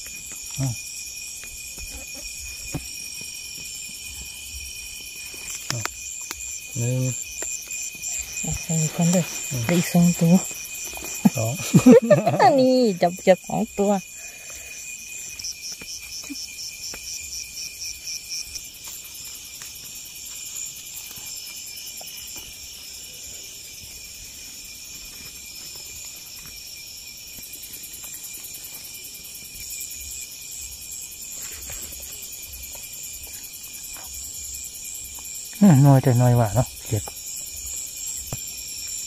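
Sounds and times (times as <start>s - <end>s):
crickets trilling: 0.0s - 39.0s
fast pulsing insect chirp: 0.0s - 39.0s
grass rustling: 5.0s - 13.1s.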